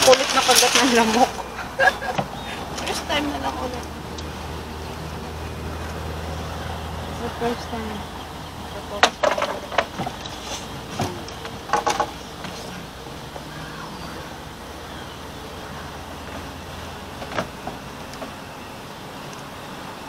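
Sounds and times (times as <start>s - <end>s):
fishing gear clicking on wooden dock: 8.9s - 13.5s.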